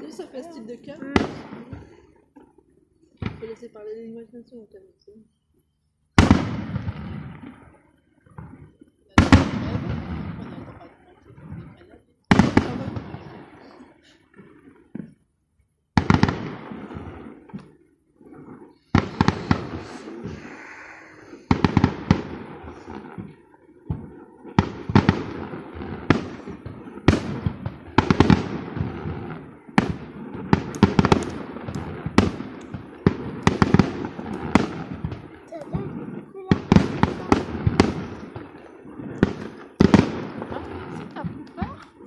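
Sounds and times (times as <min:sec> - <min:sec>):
firework shells bursting: 0:15.9 - 0:42.0.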